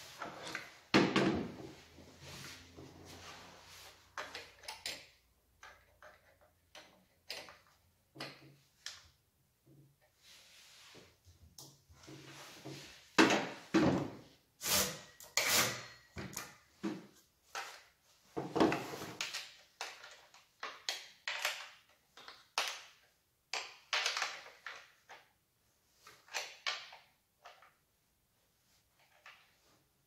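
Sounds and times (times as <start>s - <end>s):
handling scrapes knocks and rustles: 0.0s - 5.0s, 10.1s - 20.6s.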